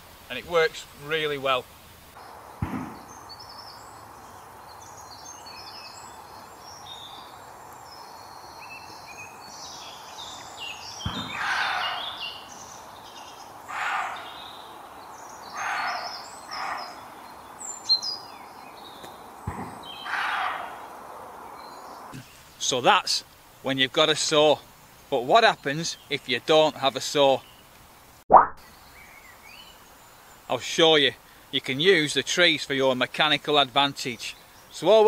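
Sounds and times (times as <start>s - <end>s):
birdsong: 0.0s - 35.0s
deer barking: 11.1s - 12.2s, 13.7s - 14.4s, 15.5s - 17.2s, 20.0s - 20.9s.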